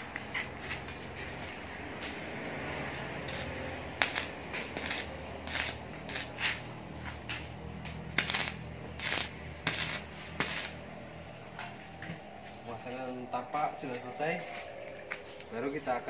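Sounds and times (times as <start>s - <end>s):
arc welding crackling: 2.9s - 11.5s.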